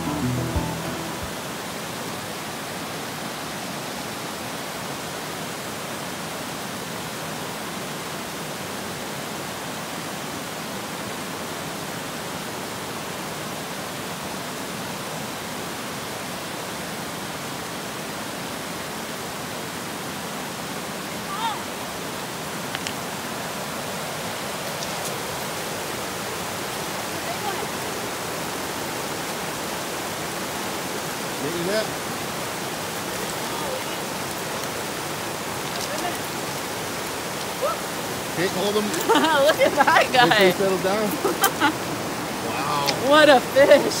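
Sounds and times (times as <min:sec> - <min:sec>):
river rapids rushing: 0:18.4 - 0:44.0.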